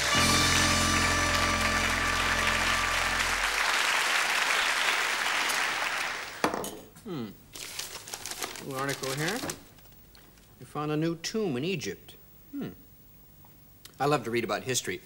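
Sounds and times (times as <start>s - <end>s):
held music chord: 0.0s - 3.7s
audience applauding: 0.0s - 6.4s.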